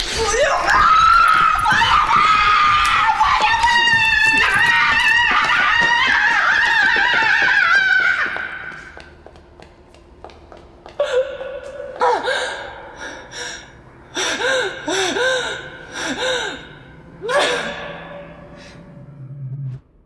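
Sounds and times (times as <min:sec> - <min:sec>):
woman gasping and crying out: 0:12.0 - 0:18.8.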